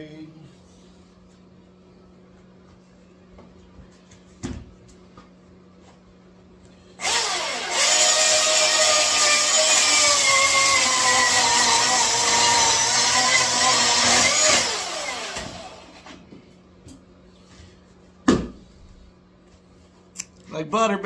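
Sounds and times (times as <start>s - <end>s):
electric chainsaw cutting log: 7.0s - 16.1s.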